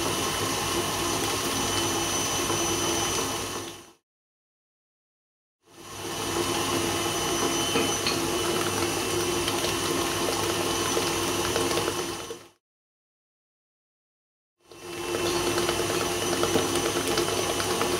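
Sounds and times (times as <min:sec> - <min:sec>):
stand mixer motor running: 0:00.0 - 0:04.0, 0:05.7 - 0:12.6, 0:14.6 - 0:17.9.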